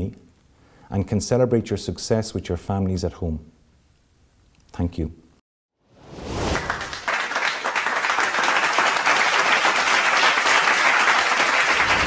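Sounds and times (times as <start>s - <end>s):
applause: 6.5s - 12.0s.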